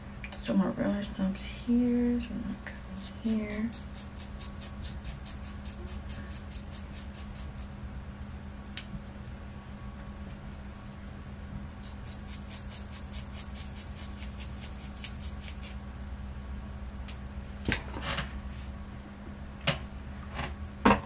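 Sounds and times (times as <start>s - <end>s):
low hum: 0.0s - 21.0s
comb clicking through hair: 11.8s - 15.8s.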